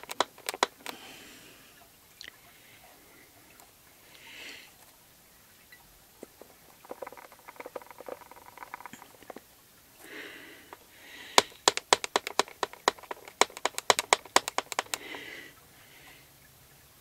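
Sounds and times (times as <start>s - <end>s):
wooden stamp tapping on paper: 0.0s - 0.9s, 11.4s - 15.1s
soft breath: 0.9s - 4.8s, 10.0s - 11.6s, 15.0s - 16.4s.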